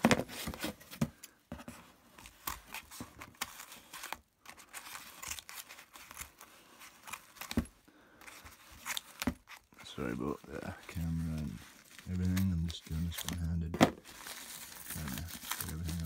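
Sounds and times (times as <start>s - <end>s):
plastic bag crinkling: 8.8s - 16.0s.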